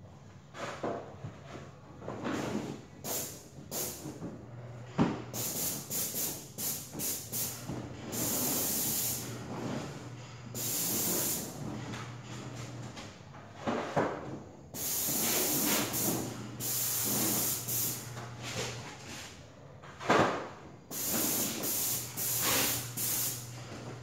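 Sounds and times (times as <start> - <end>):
paint spray hissing: 3.0 - 4.0, 5.4 - 7.5, 8.1 - 9.2, 10.6 - 11.5, 14.8 - 18.0, 20.9 - 23.5.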